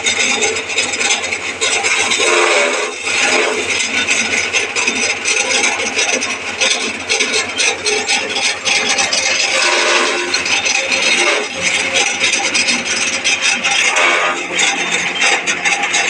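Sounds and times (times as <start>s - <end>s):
chaff cutter chopping hay: 0.0s - 16.0s.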